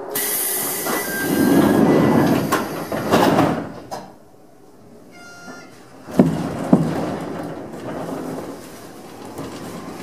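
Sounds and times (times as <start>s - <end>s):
air hiss of train doors: 0.0s - 4.2s
sliding doors thudding shut: 0.2s - 4.2s, 5.5s - 10.0s.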